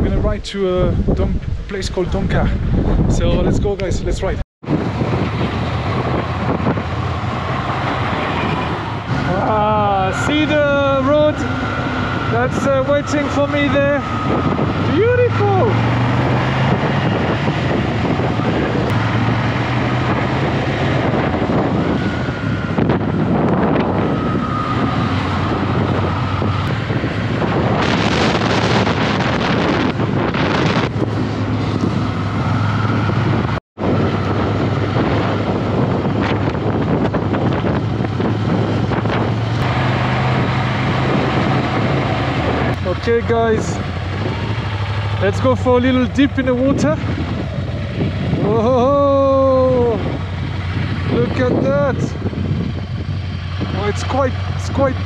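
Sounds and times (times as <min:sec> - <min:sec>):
wind buffeting microphone: 0:00.0 - 0:55.0
motorcycle engine running: 0:16.6 - 0:55.0.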